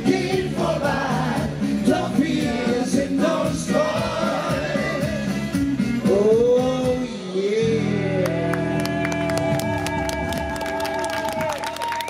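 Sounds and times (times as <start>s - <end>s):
man and woman singing: 0.0s - 8.2s
instrumental backing music: 0.0s - 12.0s.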